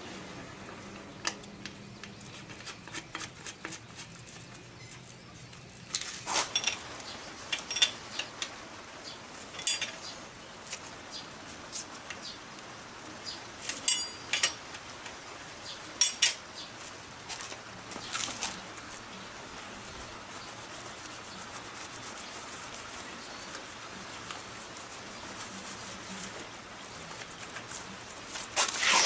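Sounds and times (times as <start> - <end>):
hand tool clinking on metal: 6.4 - 6.8, 7.5 - 8.0, 9.6 - 10.0, 13.8 - 14.6, 16.0 - 16.4.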